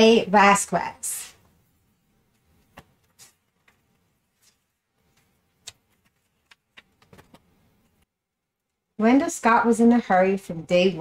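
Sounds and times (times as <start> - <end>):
book clicks and rustles: 2.6 - 8.0.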